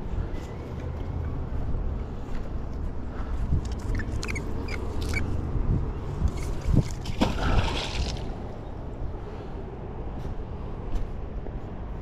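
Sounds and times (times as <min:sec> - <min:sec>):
magnet splashing into water: 0:06.3 - 0:08.4.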